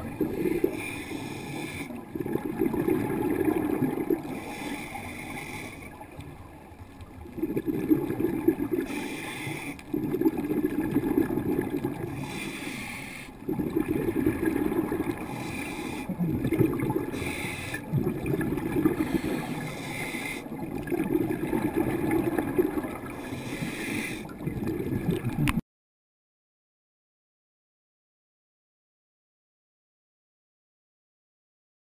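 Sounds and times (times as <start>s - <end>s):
exhaled bubbles rushing: 0.0s - 0.9s, 1.8s - 4.6s, 6.2s - 9.0s, 9.8s - 12.3s, 13.4s - 23.4s, 24.3s - 25.6s
regulator inhale hiss: 0.6s - 2.0s, 4.3s - 6.1s, 8.8s - 9.9s, 12.1s - 13.4s, 15.3s - 16.1s, 17.1s - 17.9s, 18.9s - 20.5s, 23.1s - 24.4s.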